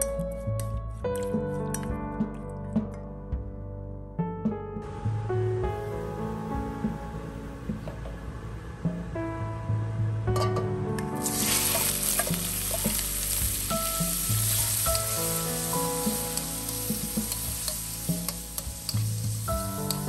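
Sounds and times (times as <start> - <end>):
soft guitar music: 0.0 - 20.0
metal spatula scraping a wok: 11.2 - 13.6
scallops sizzling in oil: 11.2 - 20.0.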